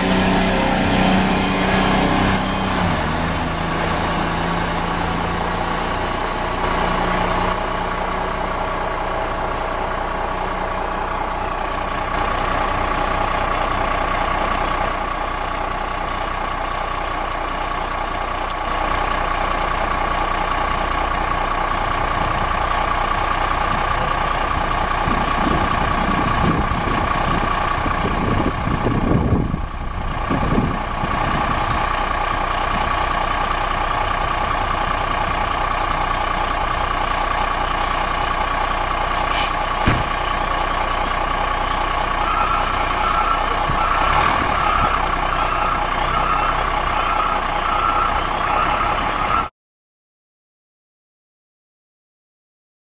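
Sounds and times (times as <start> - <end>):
steady high tone: 0.0 - 2.9
fire truck diesel engines running: 0.0 - 49.5.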